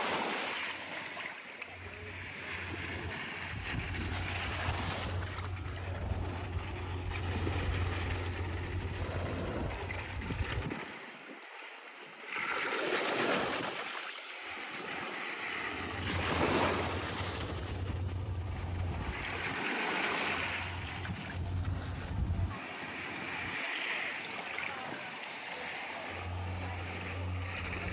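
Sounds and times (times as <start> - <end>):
waves washing onto beach: 0.0 - 27.9
wind rumbling on microphone: 1.8 - 11.4, 15.6 - 23.6.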